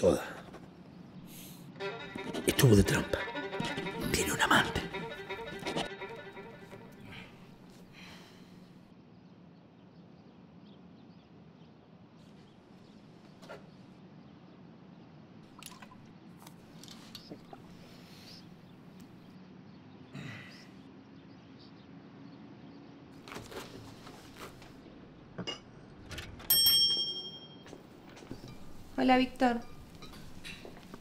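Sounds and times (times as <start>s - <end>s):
small bell ringing: 26.5s - 27.8s.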